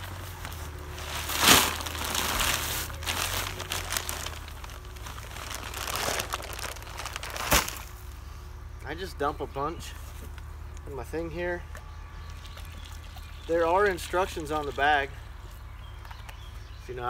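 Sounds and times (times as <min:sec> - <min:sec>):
paper bag crinkling: 0:00.0 - 0:08.0.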